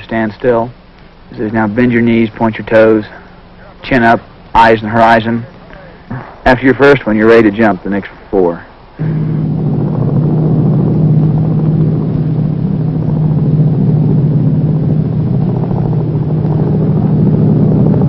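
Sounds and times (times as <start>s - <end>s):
aircraft engines droning: 0.0s - 18.0s
rush of air: 9.0s - 18.0s.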